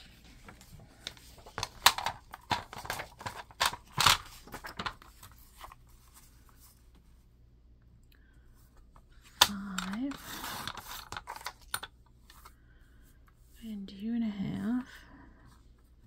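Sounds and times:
paper rustling: 0.0 - 6.9, 9.8 - 11.6.

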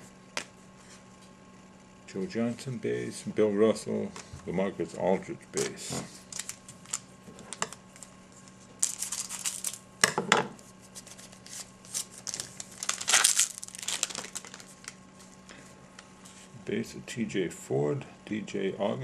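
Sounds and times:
card pack wrapper crinkling and tearing: 6.3 - 7.1, 8.8 - 9.8, 11.0 - 15.0.

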